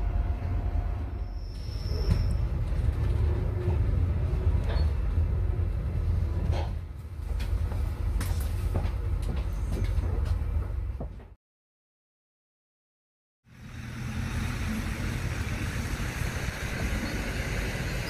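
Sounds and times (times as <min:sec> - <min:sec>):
train rumble inside carriage: 0:00.0 - 0:11.4, 0:13.5 - 0:18.0
high squeals: 0:01.1 - 0:02.6.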